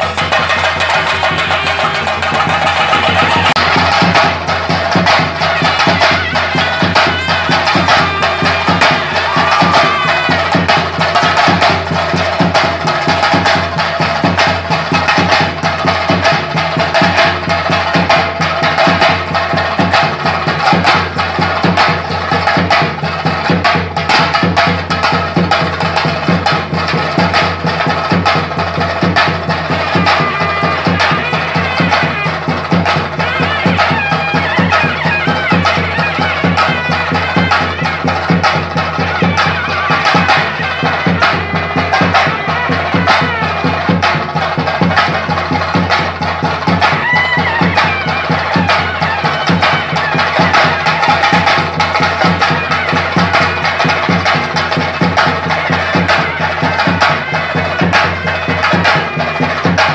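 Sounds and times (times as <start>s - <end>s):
reedy wind instrument melody: 0.0s - 12.4s, 29.2s - 59.9s
drums beaten in fast roll: 0.0s - 59.9s.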